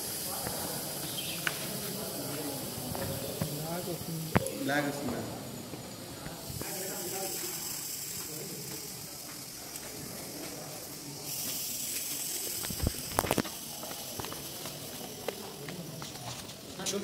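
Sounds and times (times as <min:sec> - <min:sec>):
steady hiss: 0:00.0 - 0:17.0.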